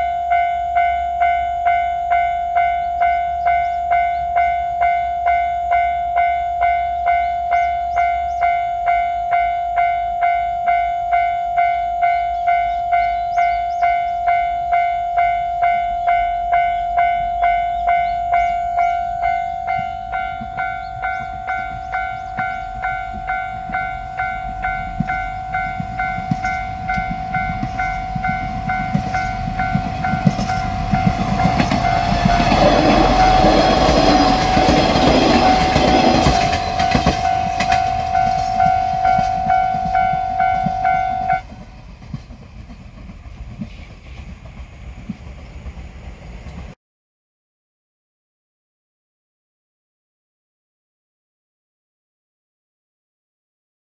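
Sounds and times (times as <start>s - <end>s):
level crossing electronic bell: 0.0s - 41.5s
diesel train passing: 0.0s - 46.8s.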